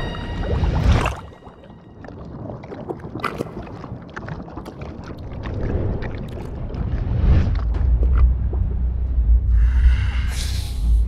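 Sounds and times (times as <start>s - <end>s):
watery pops and clicks: 2.0s - 8.7s.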